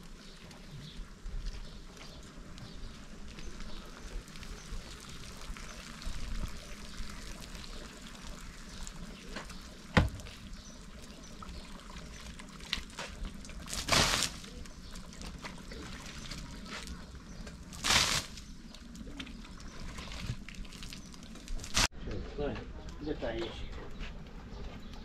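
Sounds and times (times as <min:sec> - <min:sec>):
ladle scooping and pouring water: 0:04.8 - 0:17.0.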